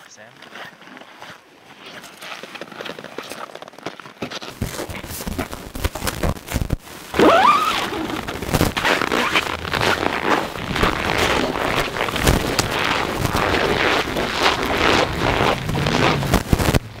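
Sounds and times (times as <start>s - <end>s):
tent fabric and clothing rustling: 0.2s - 16.9s
wind buffeting microphone: 10.5s - 17.0s.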